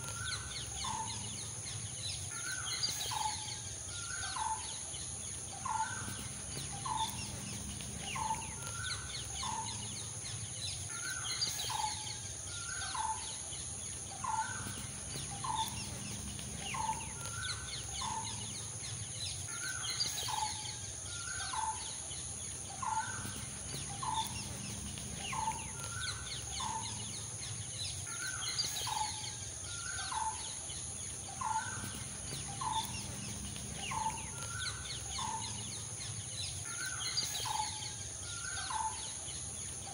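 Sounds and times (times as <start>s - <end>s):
steady high whine: 4.9s - 12.7s, 13.3s - 38.5s
bird calling: 22.7s - 30.6s, 31.2s - 39.2s.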